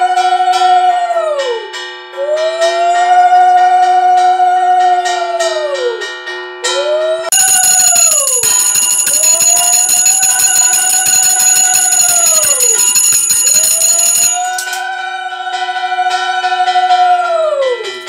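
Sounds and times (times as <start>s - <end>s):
hand bell ringing: 7.3s - 14.9s.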